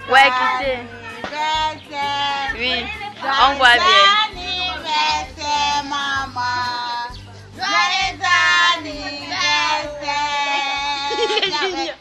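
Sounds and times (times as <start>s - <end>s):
child singing: 0.0s - 12.0s.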